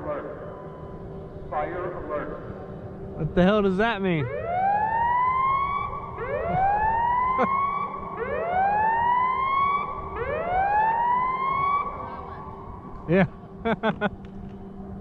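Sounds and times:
fire-alarm siren whooping: 0.0s - 2.6s, 4.2s - 12.9s.

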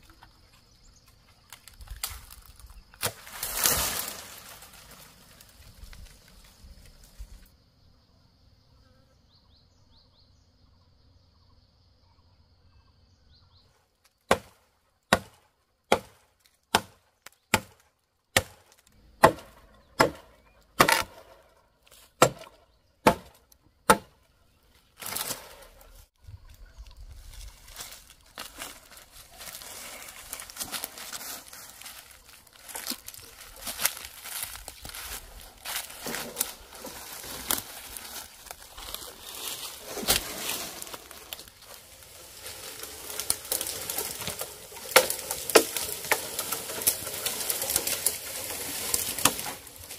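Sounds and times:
dry leaves rustling: 1.4s - 7.4s, 24.8s - 49.9s
blade chopping tree trunk: 14.3s - 24.2s, 42.5s - 49.9s.

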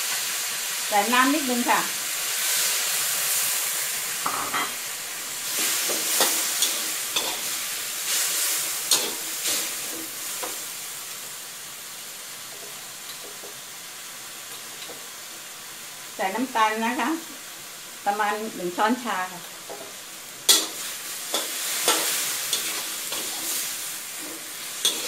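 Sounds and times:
food sizzling in a wok: 0.0s - 25.0s
metal spatula scraping a pan: 5.4s - 10.6s, 19.7s - 25.0s.

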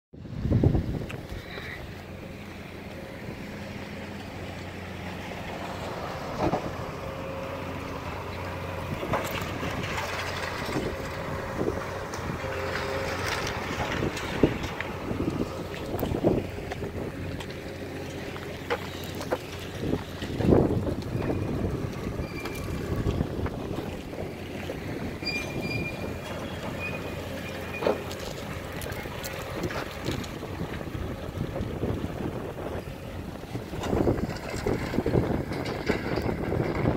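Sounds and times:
heavy diesel machinery running: 0.2s - 36.9s
low rumble: 0.2s - 36.9s
wind buffeting microphone: 0.2s - 36.9s
faint high-pitched squeaks: 25.2s - 28.0s.

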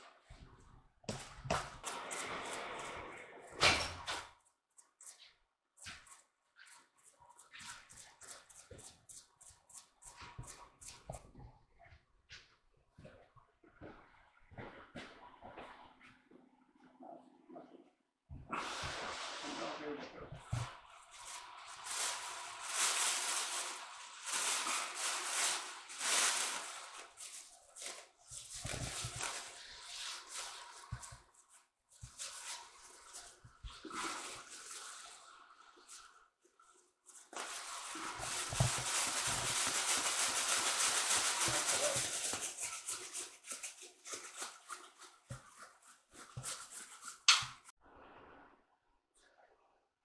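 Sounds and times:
plastic bag crinkling: 21.3s - 30.7s, 37.4s - 45.1s.

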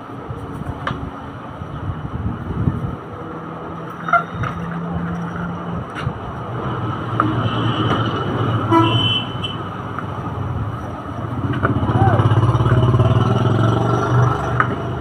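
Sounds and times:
vehicle engine droning: 0.0s - 15.0s
vehicle horn: 7.4s - 9.7s.

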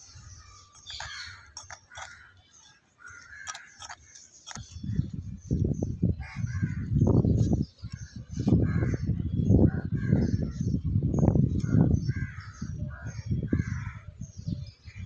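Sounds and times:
crows cawing: 0.9s - 2.4s, 3.0s - 4.1s, 12.1s - 12.6s.

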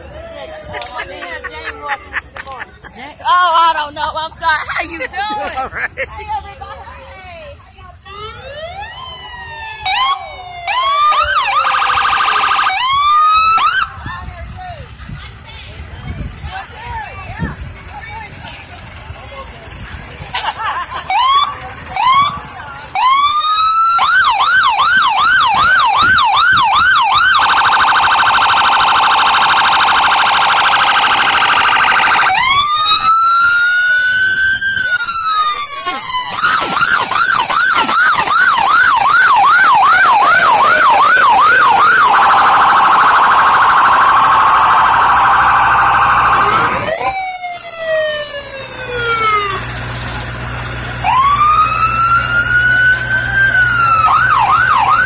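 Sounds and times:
police siren: 8.0s - 14.0s, 20.3s - 55.0s.

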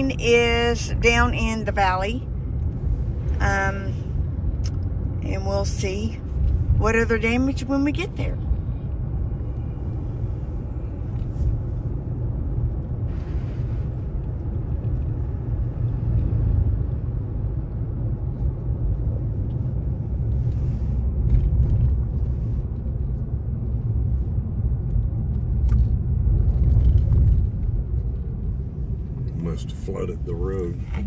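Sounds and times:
car driving rumble from inside: 0.0s - 31.0s
hissing road noise: 8.4s - 16.3s.

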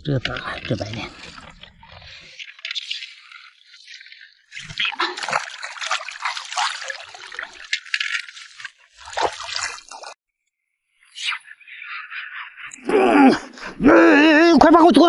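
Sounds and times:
water splashing and trickling: 0.0s - 10.2s.

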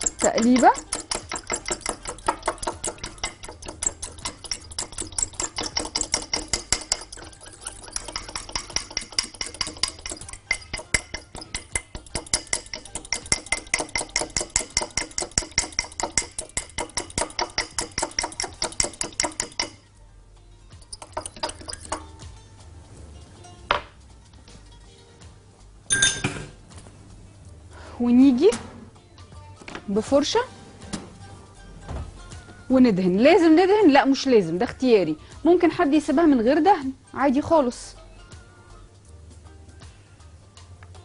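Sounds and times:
fork whisking in glass jug: 0.0s - 19.9s, 20.8s - 22.3s.

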